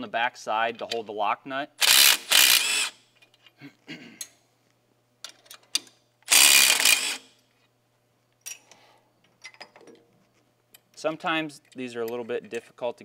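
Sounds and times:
cordless ratchet spinning: 1.8s - 3.0s, 6.3s - 7.3s.

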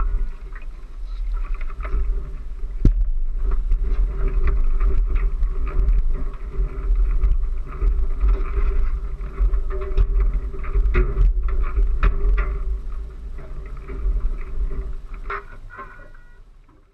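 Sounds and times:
steady hum: 0.0s - 16.7s
water and wind rumble: 0.0s - 16.9s
knocks and clicks: 2.8s - 3.8s.

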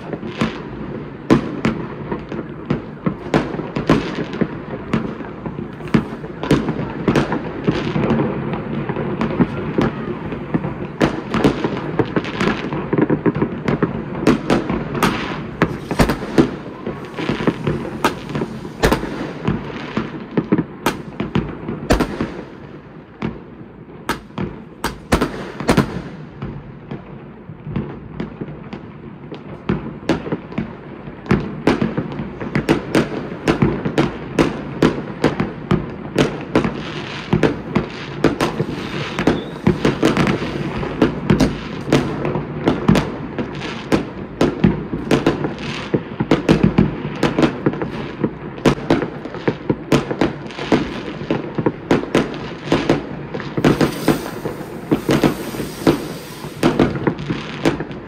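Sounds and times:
fireworks banging and crackling: 0.0s - 58.0s.

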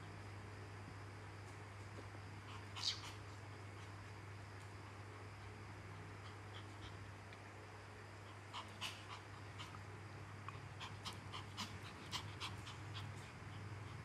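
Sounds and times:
low steady hum: 0.0s - 14.0s
puppy panting: 5.9s - 7.2s, 8.2s - 14.0s.

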